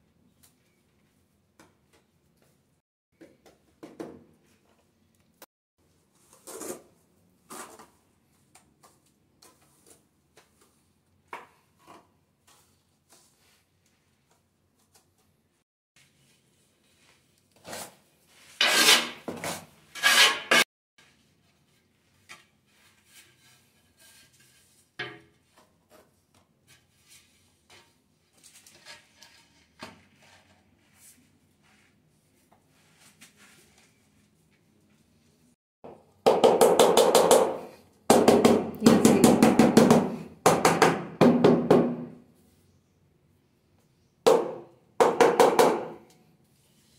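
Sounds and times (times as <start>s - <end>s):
trowel scraping adhesive on concrete: 17.6s - 20.7s.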